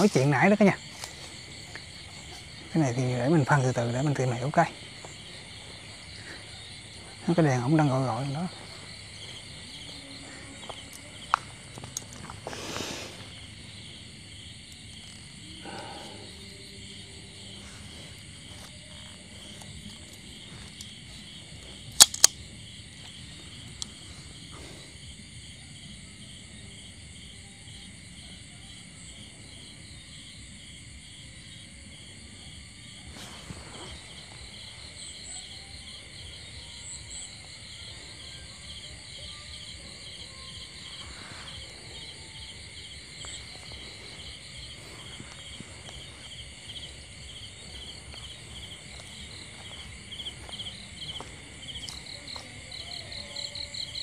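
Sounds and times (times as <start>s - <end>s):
crickets chirping: 0.0s - 54.0s
sharp clicks: 22.0s - 22.4s.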